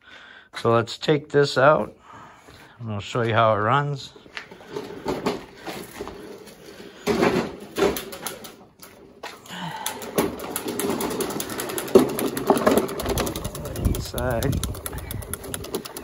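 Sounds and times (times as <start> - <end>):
push mower wheels rattling: 4.6 - 16.0.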